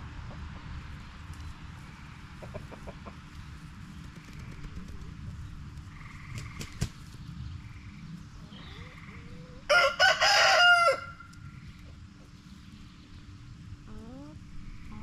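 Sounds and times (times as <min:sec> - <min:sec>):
hen clucking: 0:02.0 - 0:03.4, 0:13.8 - 0:15.0
rooster crowing: 0:09.6 - 0:11.3.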